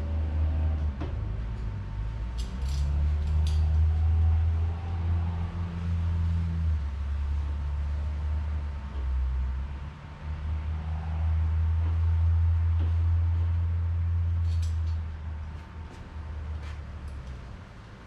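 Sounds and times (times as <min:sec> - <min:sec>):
small metal clinks: 0:02.4 - 0:03.8.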